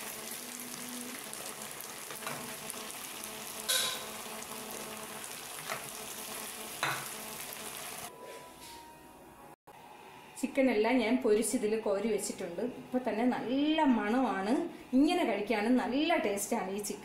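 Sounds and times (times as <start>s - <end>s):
chicken sizzling in frying pan: 0.0s - 8.1s.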